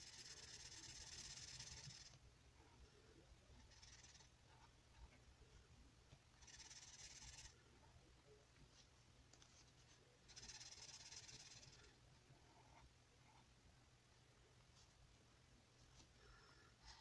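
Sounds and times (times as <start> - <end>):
marker scratching on paper: 0.0 - 2.2, 9.4 - 13.4.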